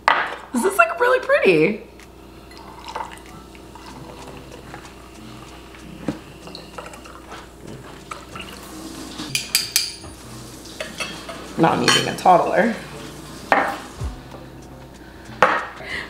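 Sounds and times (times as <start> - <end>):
liquid trickling into glass: 2.5 - 4.8, 6.4 - 7.4, 8.0 - 9.7.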